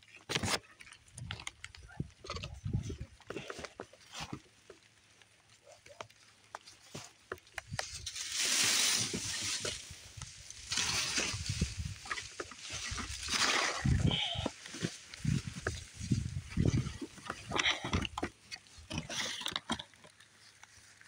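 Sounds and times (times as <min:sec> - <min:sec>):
brush rustling and crackling: 0:00.0 - 0:21.0
twigs snapping: 0:05.8 - 0:21.0.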